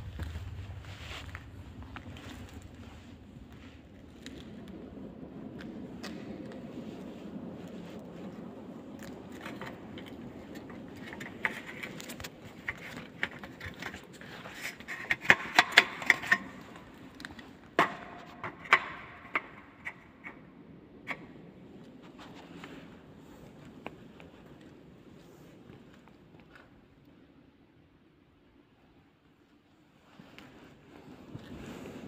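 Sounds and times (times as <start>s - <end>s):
low steady hum: 0.0s - 14.7s.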